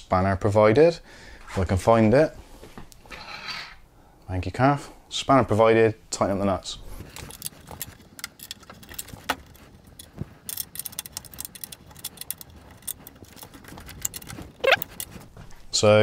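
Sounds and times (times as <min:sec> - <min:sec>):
spanner clinking on metal: 0:07.1 - 0:15.2.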